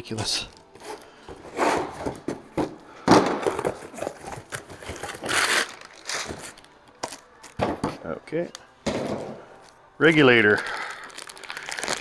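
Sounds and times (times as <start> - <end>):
packing paper rustling: 3.9 - 7.2, 10.1 - 12.0.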